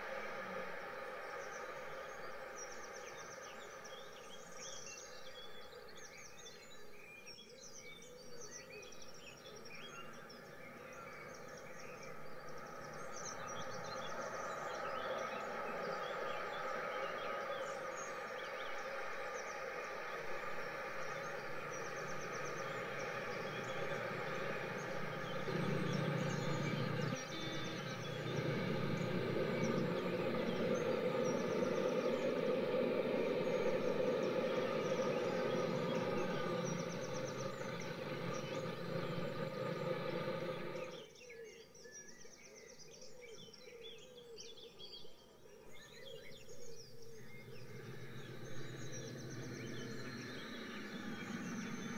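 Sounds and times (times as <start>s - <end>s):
bird chirps: 17.0s - 41.2s, 47.0s - 51.9s.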